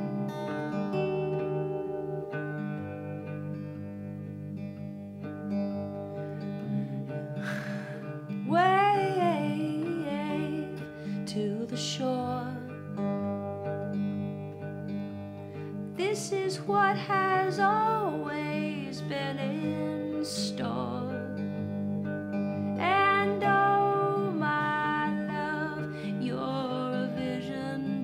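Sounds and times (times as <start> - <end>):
acoustic guitar fingerpicked: 0.0 - 28.0
woman singing: 7.4 - 13.2, 15.9 - 21.4, 22.8 - 28.0.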